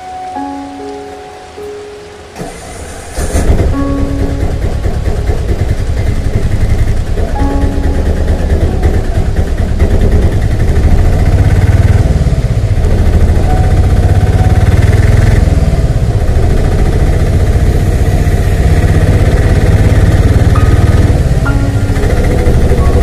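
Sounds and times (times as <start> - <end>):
tyre hiss on wet road: 0.0 - 7.2, 14.1 - 21.5
engine and road rumble: 0.0 - 23.0.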